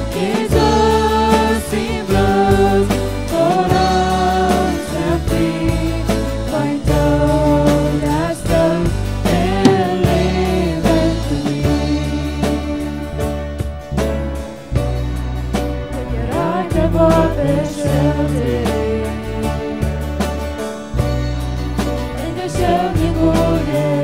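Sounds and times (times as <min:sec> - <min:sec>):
band playing with beat: 0:09.2 - 0:12.9
person singing: 0:09.4 - 0:12.5.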